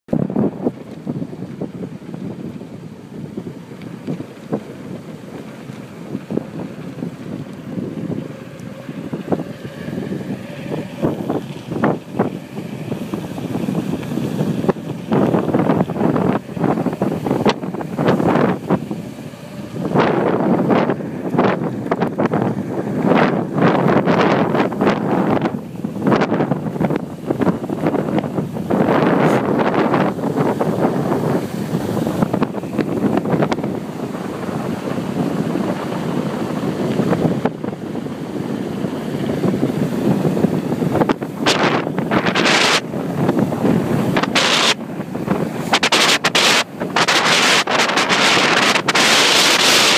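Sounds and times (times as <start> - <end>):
wind buffeting microphone: 0.1 - 49.9.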